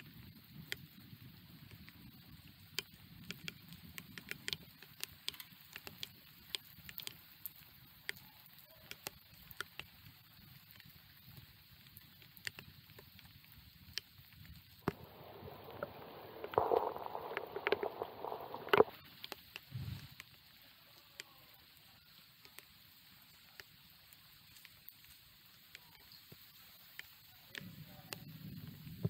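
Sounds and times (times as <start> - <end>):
raindrops ticking: 0.1 - 29.0
faint low rush: 14.8 - 18.9.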